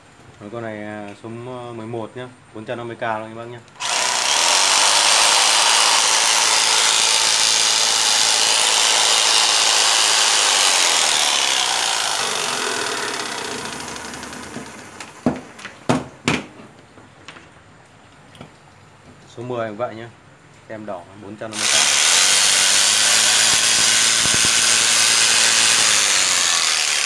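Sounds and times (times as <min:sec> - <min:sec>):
electric jigsaw running: 0:03.8 - 0:15.2, 0:21.5 - 0:27.0
jigsaw winding down: 0:03.8 - 0:15.2, 0:21.5 - 0:27.0.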